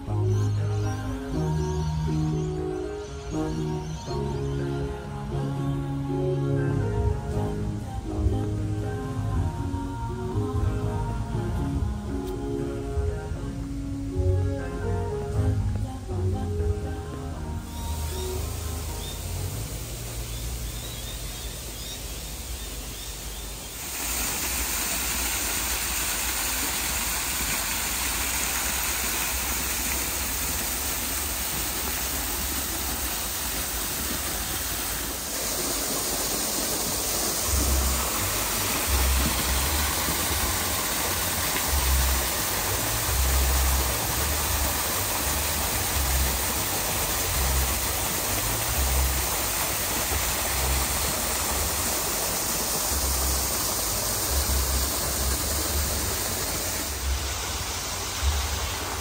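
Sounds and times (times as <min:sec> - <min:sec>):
water feature rushing: 0:00.0 - 0:59.0
low rumbles: 0:03.4 - 0:22.9.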